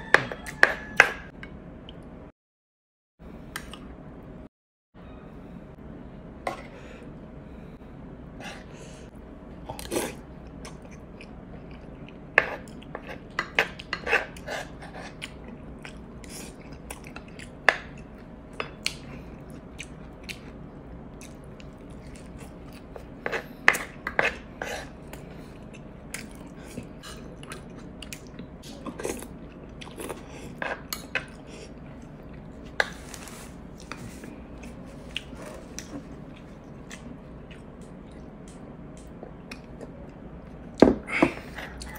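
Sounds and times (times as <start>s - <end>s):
spoon scraping a dish: 12.4s - 15.2s.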